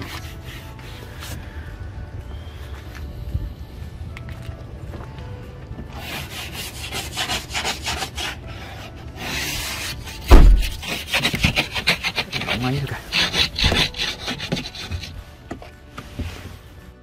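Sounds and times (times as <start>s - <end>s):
heavy low thump: 10.3s - 10.8s.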